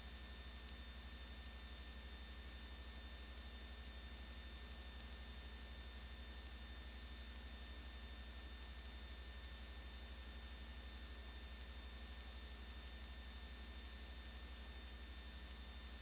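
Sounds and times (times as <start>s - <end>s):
faint tape hiss: 0.0s - 16.0s
low electrical hum: 0.0s - 16.0s.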